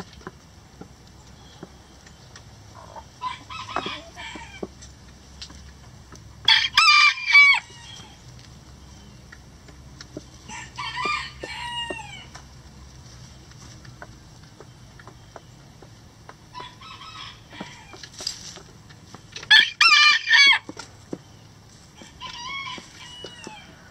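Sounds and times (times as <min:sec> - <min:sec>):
chicken calls: 0:00.0 - 0:23.9
rooster crowing: 0:03.2 - 0:04.7, 0:06.4 - 0:08.2, 0:10.5 - 0:12.4, 0:16.5 - 0:18.0, 0:19.5 - 0:20.7, 0:22.0 - 0:23.9.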